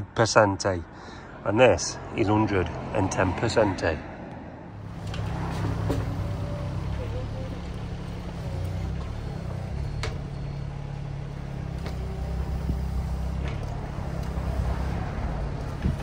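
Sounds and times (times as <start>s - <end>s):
engine humming at low revs: 4.7s - 16.0s.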